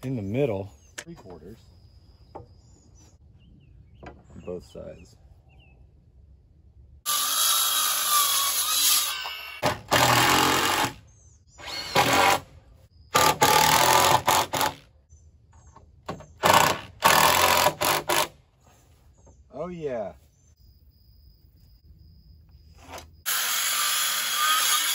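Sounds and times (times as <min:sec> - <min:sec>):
cordless drill driving screws: 0:11.6 - 0:12.4, 0:16.4 - 0:18.3.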